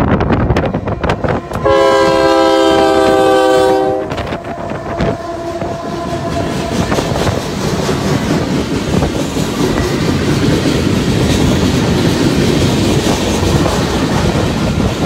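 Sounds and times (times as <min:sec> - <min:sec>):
locomotive air horn blast: 0:00.8 - 0:07.4
train wheels clattering: 0:03.0 - 0:15.0.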